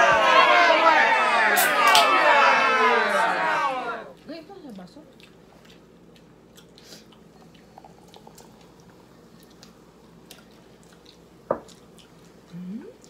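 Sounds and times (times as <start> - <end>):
people chewing noodles: 5.0 - 13.0.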